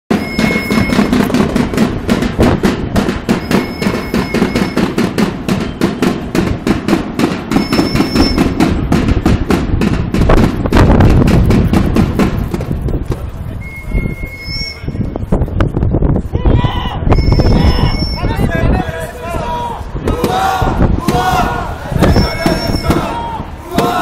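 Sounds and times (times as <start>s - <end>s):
whistle long blasts: 0.1s - 1.3s, 3.3s - 6.2s, 7.5s - 8.6s, 13.6s - 15.2s, 17.1s - 18.5s, 22.0s - 23.3s
marching drums beating: 0.1s - 13.3s, 20.0s - 24.0s.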